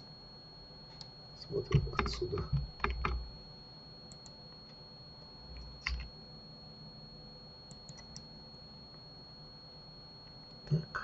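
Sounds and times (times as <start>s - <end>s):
keyboard and mouse clicks: 0.9s - 3.2s, 5.5s - 6.1s, 7.7s - 8.3s.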